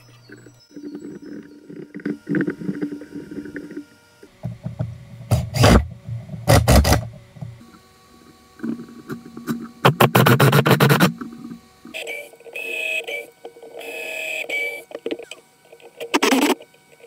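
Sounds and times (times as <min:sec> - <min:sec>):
low hum: 0:00.0 - 0:12.4
cordless drill driving screws: 0:05.3 - 0:07.1.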